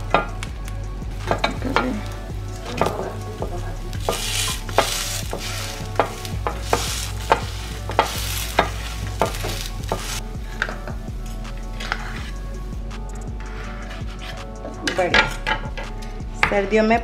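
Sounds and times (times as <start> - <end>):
spatula tapping and scraping: 1.3 - 12.4
bread sizzling on grill pan: 4.0 - 10.2.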